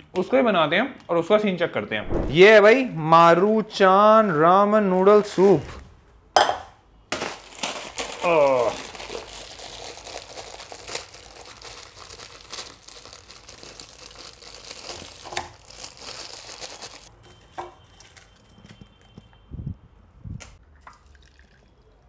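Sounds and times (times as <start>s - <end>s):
plastic wrapper crinkling and tearing: 7.1s - 17.1s.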